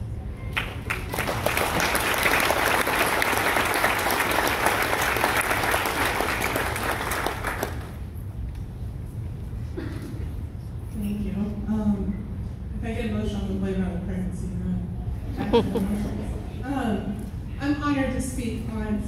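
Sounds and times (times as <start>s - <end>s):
audience applauding: 0.5s - 8.0s.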